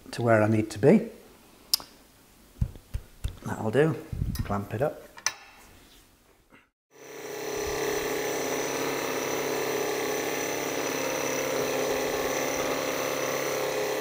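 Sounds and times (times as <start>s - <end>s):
click: 1.7s - 1.9s
electric motor humming and whining: 7.0s - 14.0s
end mill cutting metal: 7.0s - 14.0s.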